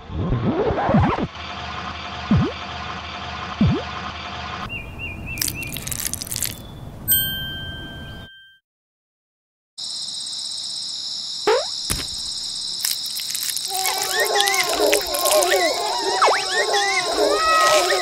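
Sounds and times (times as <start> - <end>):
bell-like ding: 7.1 - 8.6.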